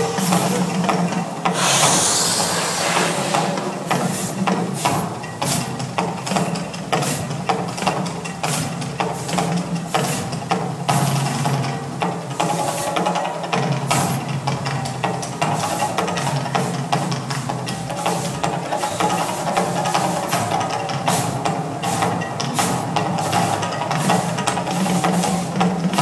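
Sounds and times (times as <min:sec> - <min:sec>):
steady low hum: 0:01.4 - 0:05.2
fireball whoosh: 0:01.6 - 0:04.4.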